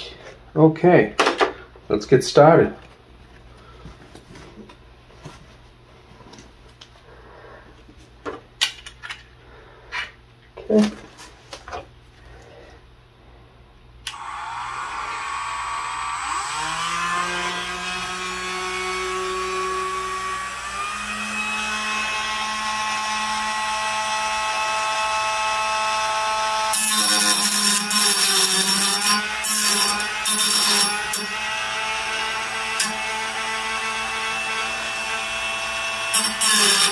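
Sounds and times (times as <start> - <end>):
rotary tool whining: 14.1 - 36.9
disc cutting steel: 26.6 - 36.9.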